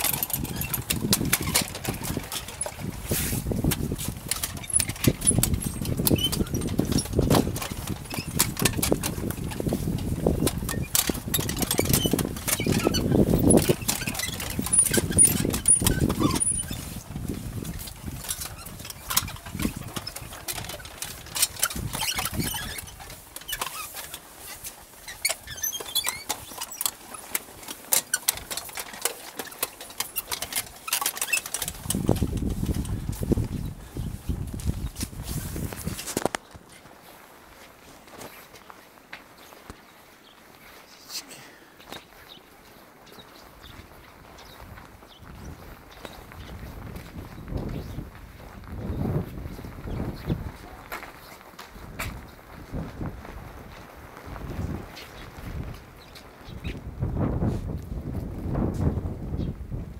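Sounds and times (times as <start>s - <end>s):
wind buffeting microphone: 0.0s - 23.2s, 31.6s - 36.6s, 43.4s - 59.9s
footsteps on dirt and stone: 0.0s - 59.9s.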